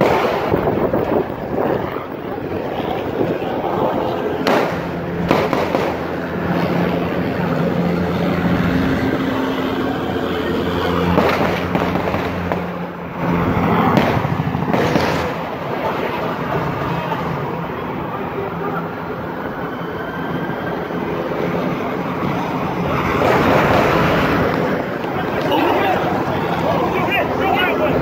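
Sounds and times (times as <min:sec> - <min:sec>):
gunshots: 0:00.0 - 0:00.9, 0:04.4 - 0:06.5, 0:11.1 - 0:12.9, 0:13.8 - 0:15.7
steady noisy din: 0:00.0 - 0:28.0.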